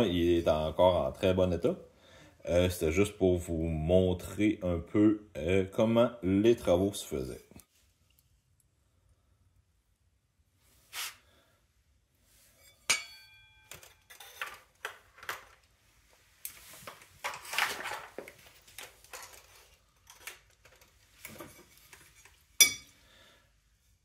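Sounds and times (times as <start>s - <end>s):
metal piece ringing: 12.6s - 13.9s, 22.6s - 22.9s
metal tools clinking and clattering: 12.6s - 15.6s, 17.2s - 23.0s
rubbing and rustling: 14.2s - 22.6s.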